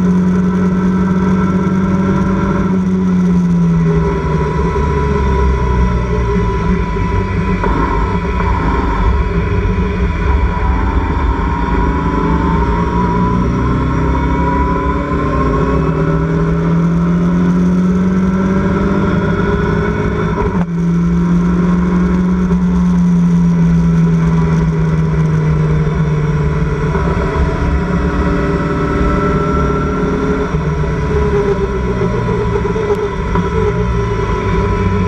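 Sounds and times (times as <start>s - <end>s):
race car engine at high revs: 0.0s - 35.0s
rushing noise: 1.0s - 17.0s, 23.2s - 35.0s.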